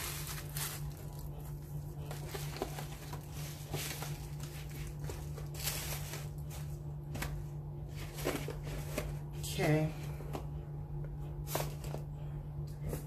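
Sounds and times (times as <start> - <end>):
rustling of wig and packaging: 0.0 - 9.7, 11.4 - 12.1
steady low hum: 0.0 - 13.0.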